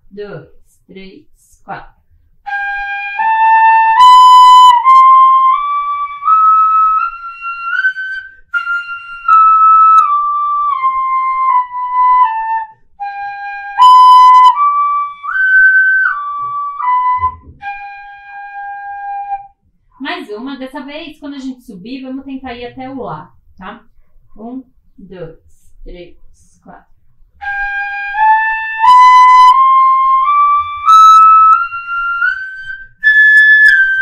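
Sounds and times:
wooden fife playing scales: 13.8s - 19.0s, 27.4s - 34.0s.

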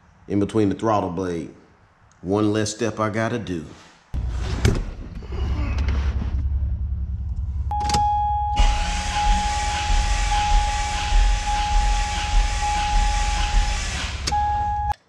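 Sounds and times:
high electronic warning tone: 7.7s - 15.0s
engine cranking on starter: 8.6s - 14.5s.

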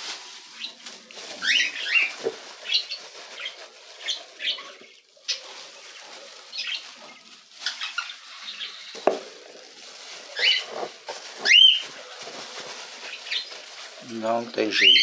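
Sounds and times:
wood shavings scraped with metal scoop: 0.0s - 15.0s
knock: 9.0s - 9.2s.

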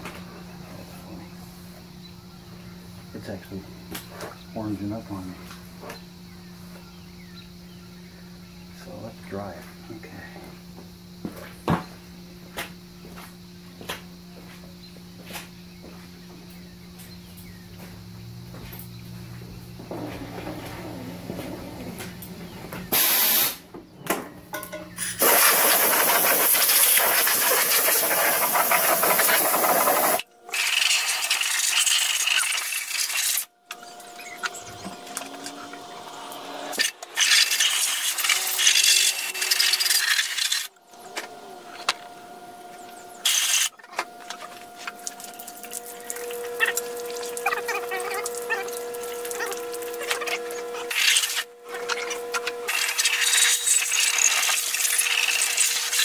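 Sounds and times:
compressed air blowgun hissing: 22.9s - 23.6s, 25.0s - 33.4s.

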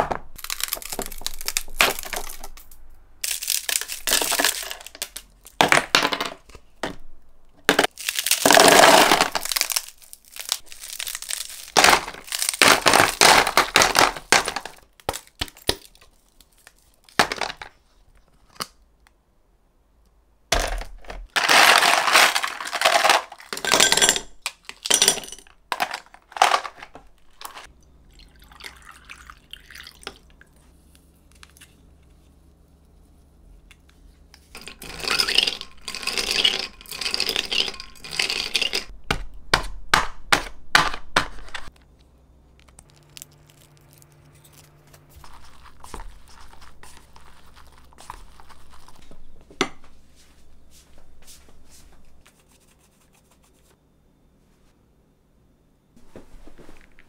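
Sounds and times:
ice cubes clattering into plastic box: 7.9s - 14.8s, 20.6s - 27.7s, 34.6s - 38.9s.

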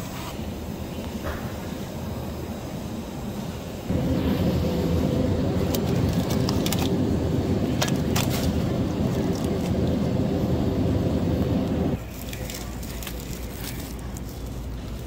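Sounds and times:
low hum with faint tones: 0.4s - 15.0s
plastic package crinkling: 5.6s - 9.9s, 12.0s - 15.0s.

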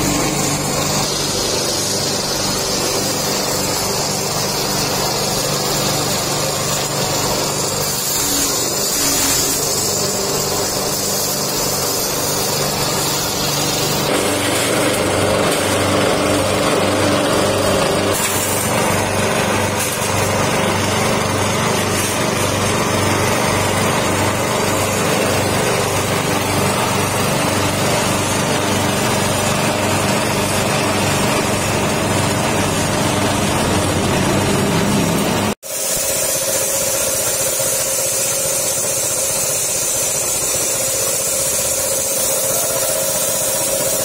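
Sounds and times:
grass being chopped: 0.0s - 34.0s
small petrol engine running: 0.0s - 44.0s.

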